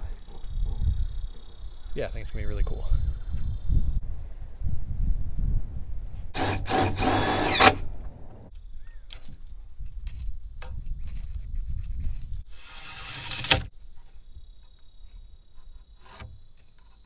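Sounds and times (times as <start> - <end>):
wind rumbling on microphone: 0.0 - 12.8
power drill running: 6.4 - 7.8.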